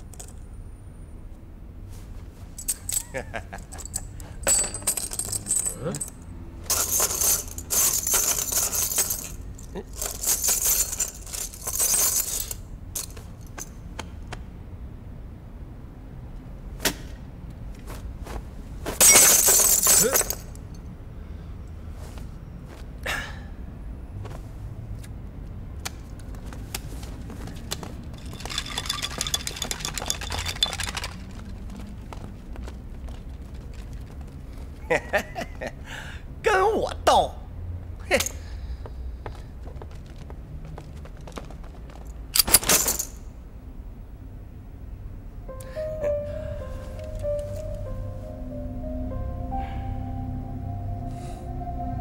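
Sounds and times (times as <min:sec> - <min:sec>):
coins jingling: 0:02.6 - 0:13.7, 0:19.0 - 0:20.8, 0:28.1 - 0:31.8, 0:42.4 - 0:43.2
clatter of small hard objects: 0:28.1 - 0:32.1.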